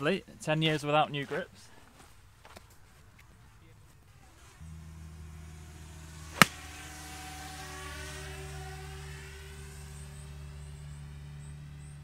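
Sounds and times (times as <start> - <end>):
drone propellers humming: 4.6 - 11.7
golf club striking ball: 6.3 - 6.8.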